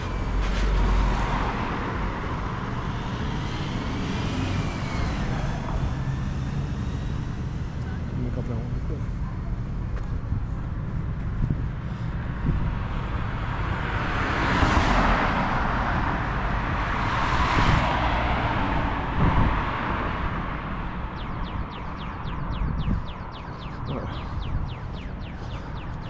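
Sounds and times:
cars passing on road: 0.0s - 26.0s
wind rumble on microphone: 0.0s - 26.0s
crossing signal falling chirps: 21.0s - 26.0s.

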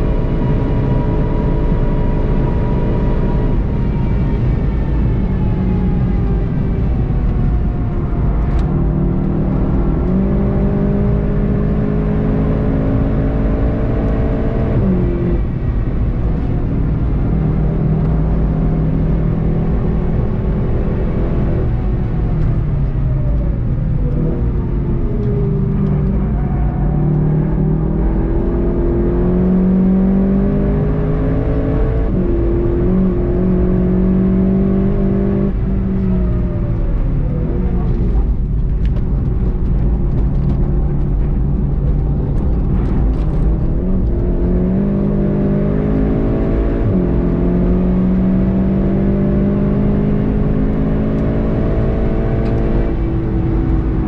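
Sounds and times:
car engine revving with upshifts: 0.0s - 54.0s.

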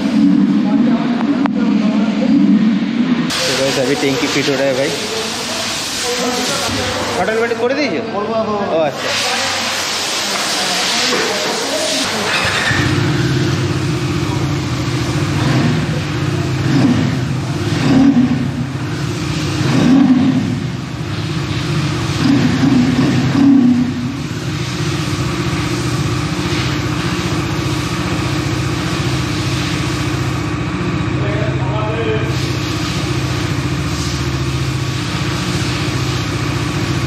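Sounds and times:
motorcycle engine idling and revving: 0.0s - 8.5s, 9.5s - 37.0s.

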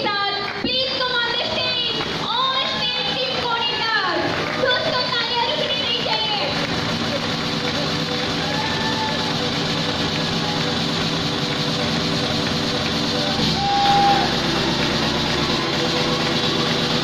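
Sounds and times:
audience applauding: 0.0s - 17.0s
background music: 1.4s - 17.0s
short whistle: 13.3s - 14.5s.

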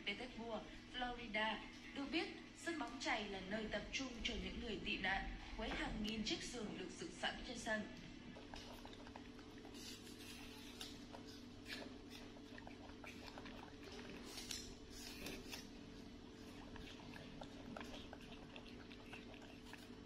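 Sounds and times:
steady low hum: 0.0s - 20.0s
monkeys chewing apple: 7.4s - 20.0s.

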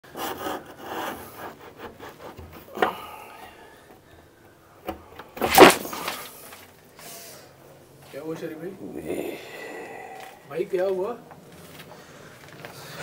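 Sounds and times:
wood rubbing and scraping: 0.0s - 6.8s.

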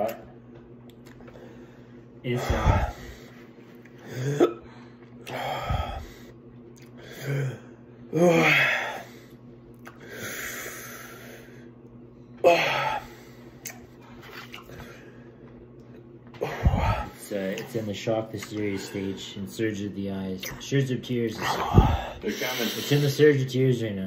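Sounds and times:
man gasping and breathing hard: 5.3s - 6.3s.

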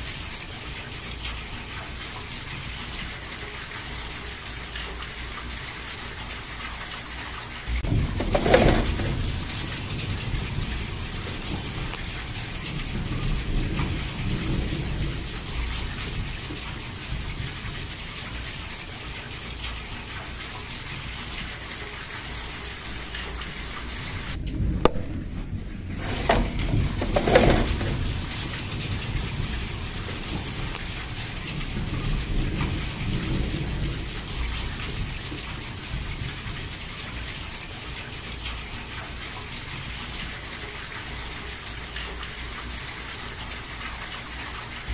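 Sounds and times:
heavy rain pouring: 0.0s - 44.9s
rolls of thunder: 7.7s - 16.4s, 24.2s - 35.2s.

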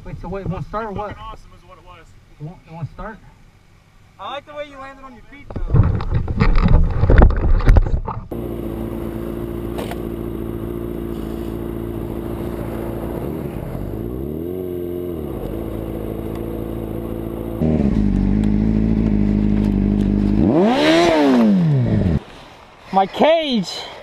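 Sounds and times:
motorcycle engine revving: 8.3s - 22.2s.

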